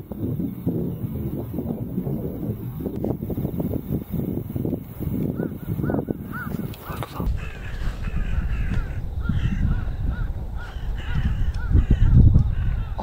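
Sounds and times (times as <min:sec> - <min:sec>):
wind rumble on microphone: 0:00.0 - 0:13.0
flock of birds calling harshly: 0:05.4 - 0:13.0.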